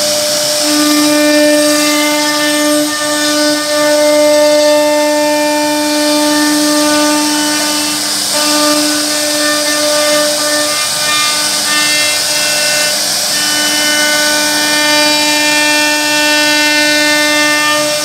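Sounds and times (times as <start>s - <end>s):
bit cutting wood hiss: 0.0s - 18.0s
router spindle whine: 0.0s - 18.0s.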